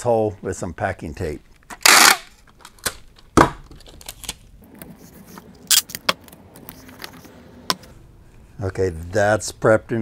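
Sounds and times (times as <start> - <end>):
tape tearing: 5.6 - 7.2
packing tape ripping off roll: 5.7 - 6.0.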